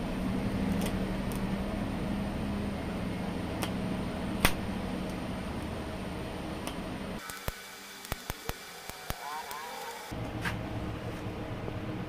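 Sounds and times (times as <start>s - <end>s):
welding arc buzzing and hissing: 4.2s - 10.2s
sharp crack: 4.4s - 4.7s.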